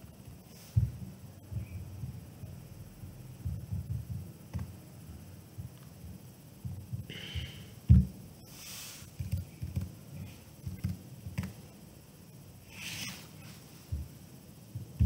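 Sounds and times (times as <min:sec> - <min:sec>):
faint low thumps: 0:00.7 - 0:08.3
short soft hisses: 0:08.4 - 0:09.2, 0:12.7 - 0:13.9.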